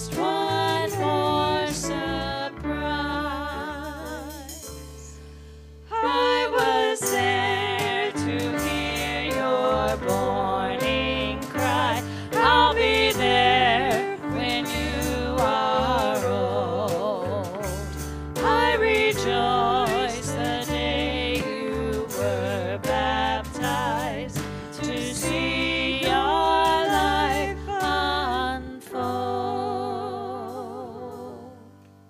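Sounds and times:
band playing: 5.9s - 29.2s.

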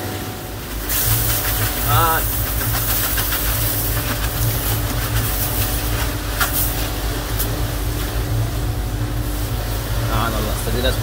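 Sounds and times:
boat engine rumble: 0.0s - 11.0s
ice hissing and rattling: 0.6s - 8.3s.

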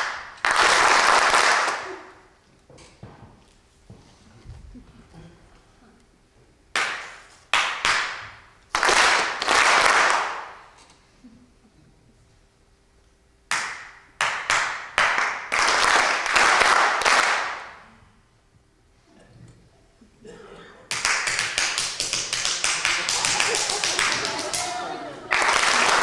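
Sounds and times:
hands clapping in a theatre: 0.0s - 2.2s, 6.7s - 10.8s, 13.5s - 17.8s, 20.9s - 26.0s.

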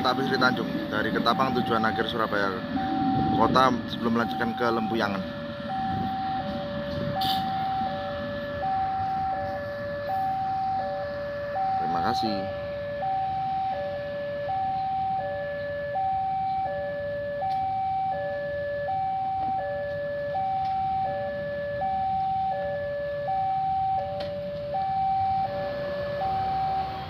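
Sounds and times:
low rumble: 0.0s - 10.0s
two-tone level crossing alarm: 0.0s - 27.0s.

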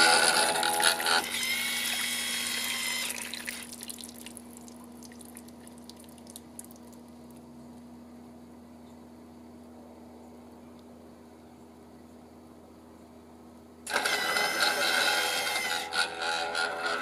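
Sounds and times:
steady low hum: 0.0s - 17.0s
water sprinkling and dripping: 2.6s - 7.4s.

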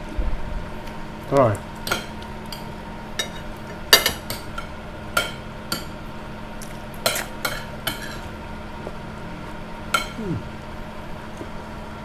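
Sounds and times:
cutlery clinking on plate: 7.0s - 8.3s.

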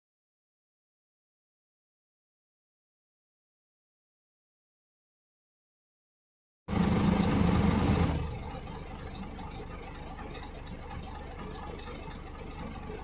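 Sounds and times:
diesel truck engine idling: 6.7s - 13.0s.

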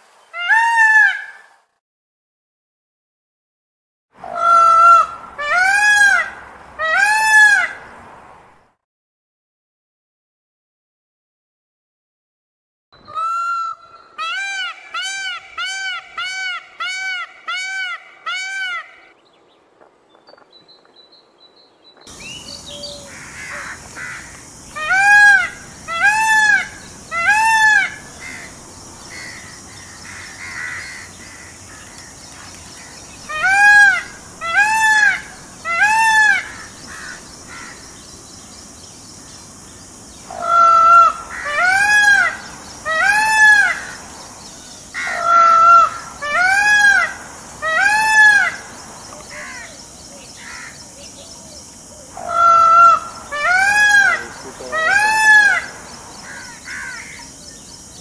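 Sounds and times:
peacock wailing calls: 0.3s - 1.5s, 4.2s - 7.9s, 13.0s - 19.2s, 22.1s - 38.1s, 40.2s - 44.2s, 44.9s - 49.8s, 52.0s - 57.3s.

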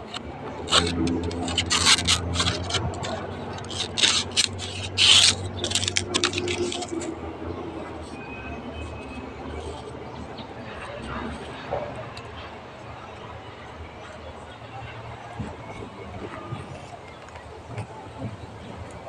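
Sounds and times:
knife scraping leaf midrib: 0.0s - 11.7s.

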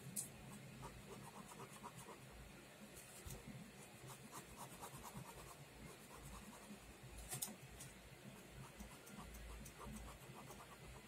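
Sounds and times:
pen scratching on paper: 0.5s - 2.2s, 4.0s - 6.8s, 8.4s - 11.0s.

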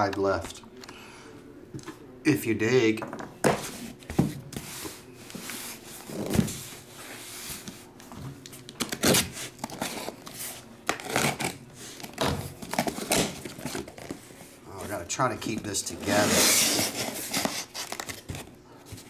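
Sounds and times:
cardboard scraping and rustling: 12.6s - 19.0s.

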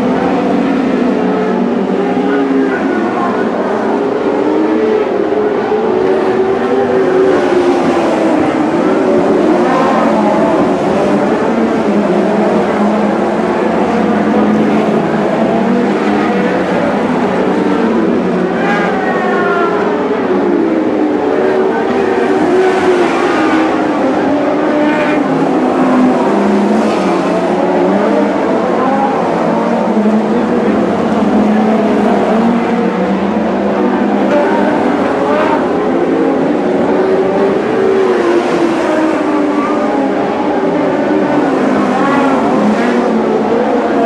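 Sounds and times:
racing car engines droning: 0.0s - 44.0s.

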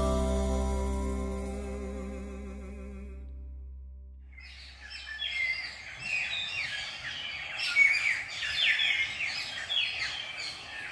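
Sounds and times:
folk-rock song chord: 0.0s - 4.1s
birds chirping in chorus: 4.3s - 10.9s.

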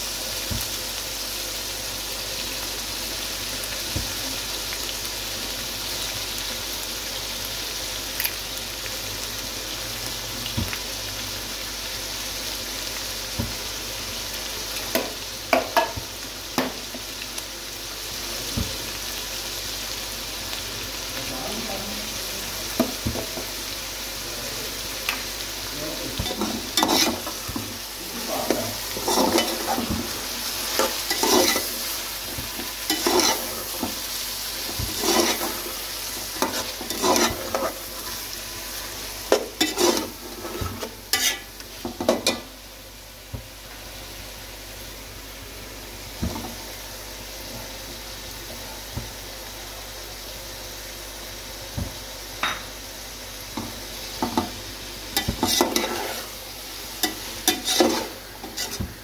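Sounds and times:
food sizzling in a pan: 0.0s - 59.0s
spatula scraping a pan: 26.2s - 42.4s, 55.2s - 56.4s, 57.0s - 59.0s.

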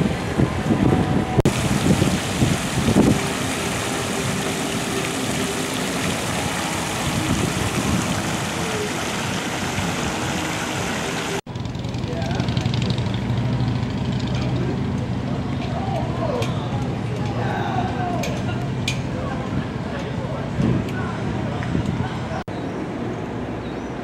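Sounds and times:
wind buffeting microphone: 0.0s - 11.4s, 17.0s - 22.4s
fountain water splashing: 0.0s - 11.5s.

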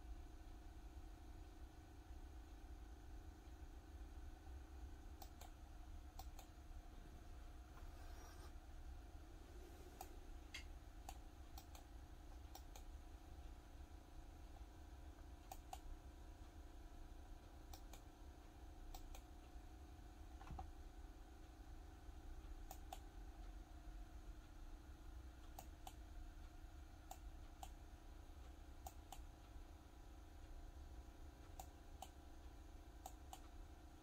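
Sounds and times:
low steady hum: 0.0s - 34.0s
computer mouse clicks: 5.1s - 6.6s, 9.8s - 13.0s, 15.4s - 15.9s, 17.6s - 18.2s, 18.8s - 19.5s, 22.5s - 23.1s, 25.4s - 26.1s, 27.0s - 27.8s, 28.7s - 29.5s, 31.4s - 32.3s, 33.0s - 33.7s.

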